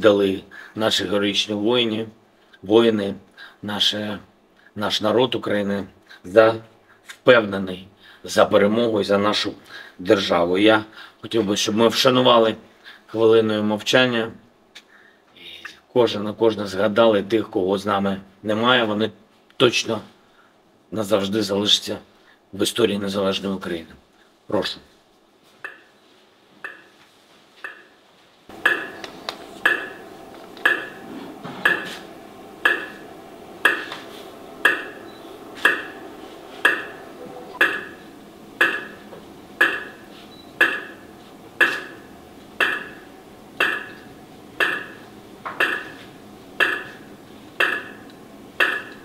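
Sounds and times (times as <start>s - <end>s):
metronome ticking: 25.6s - 25.9s, 26.6s - 27.0s, 27.6s - 27.9s, 28.5s - 29.0s, 29.6s - 30.0s, 30.6s - 31.0s, 32.6s - 33.0s, 37.6s - 38.0s, 38.6s - 39.0s, 39.6s - 40.0s, 40.6s - 41.0s, 42.6s - 43.0s, 43.6s - 44.0s, 46.6s - 46.9s, 47.6s - 49.0s
faint sustained drone: 28.5s - 40.4s.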